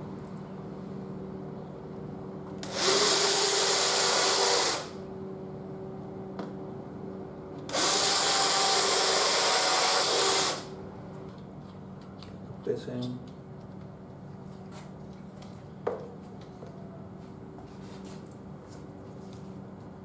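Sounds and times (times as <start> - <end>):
cordless drill boring into wood: 2.6 - 5.0, 7.7 - 10.7.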